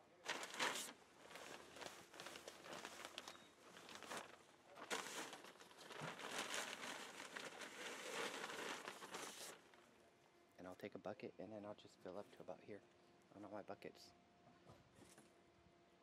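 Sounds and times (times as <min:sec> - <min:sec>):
bag rustling and crinkling: 0:00.2 - 0:09.8.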